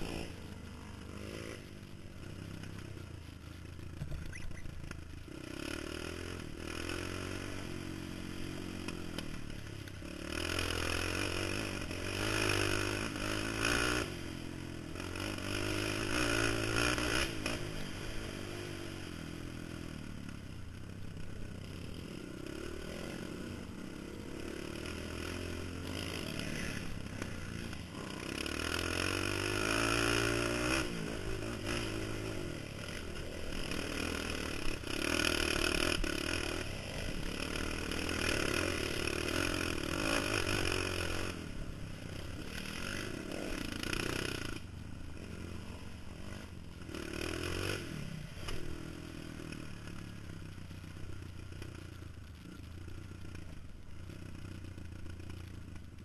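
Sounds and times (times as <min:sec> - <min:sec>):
quad engine revving: 0:10.0 - 0:18.9, 0:22.0 - 0:41.6, 0:46.2 - 0:49.6.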